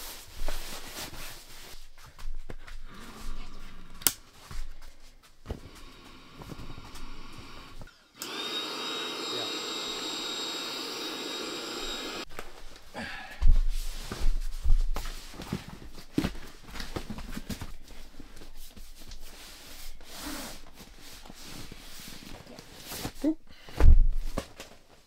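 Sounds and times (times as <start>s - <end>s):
electric air pump running: 5.6s - 12.3s.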